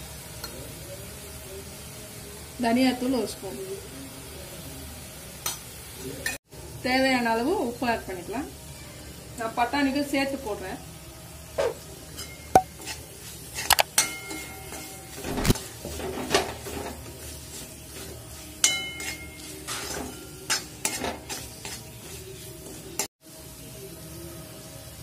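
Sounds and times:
faint sizzling: 0.0 - 25.0
metal spoon scraping a pan: 11.6 - 23.1.

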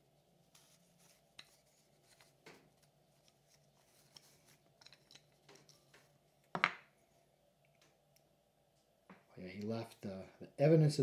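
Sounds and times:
cloth string rustling: 0.0 - 7.3.

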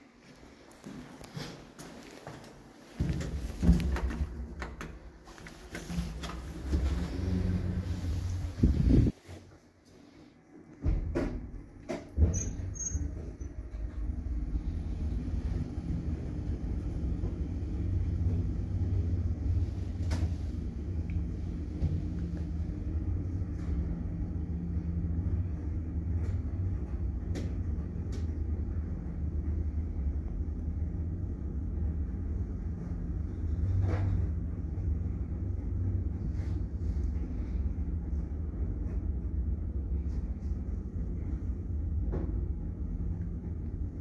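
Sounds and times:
lift rumble and hum: 2.7 - 44.0.

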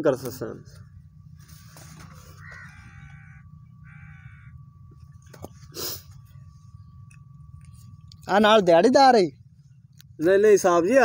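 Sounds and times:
outdoor background noise: 0.0 - 11.0
animal calling: 2.0 - 4.6.

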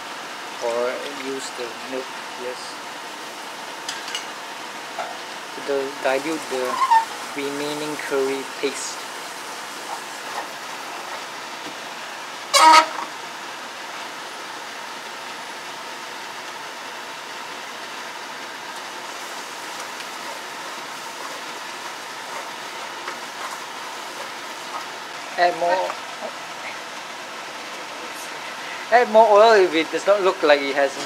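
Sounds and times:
paste frying in oil: 0.1 - 31.0
horn toot: 12.5 - 13.1.

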